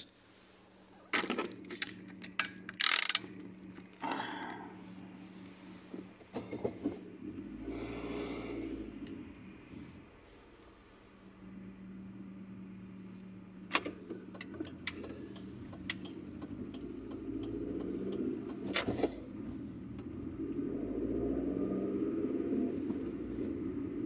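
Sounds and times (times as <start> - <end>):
car engine hum: 0.0 - 24.0
road rumble: 0.0 - 24.0
sharp clicks and rattles: 1.1 - 4.0, 13.7 - 19.3.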